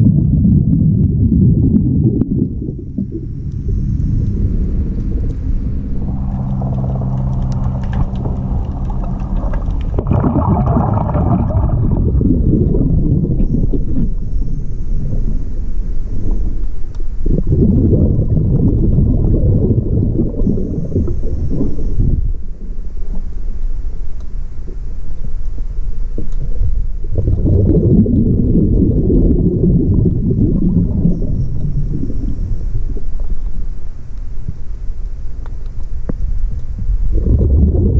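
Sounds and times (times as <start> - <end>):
exhaled bubbles rushing: 0.0 - 15.4, 17.2 - 22.4, 26.4 - 33.2, 37.0 - 37.9
steady hum with hiss: 0.0 - 37.9
steady low rumble: 0.0 - 37.9.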